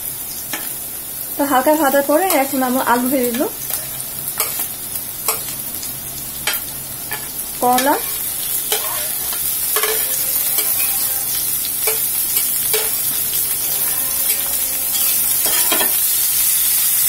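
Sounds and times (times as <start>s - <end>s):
vegetables sizzling in oil: 0.0s - 17.0s
metal spatula scraping: 2.3s - 5.6s, 6.4s - 16.2s.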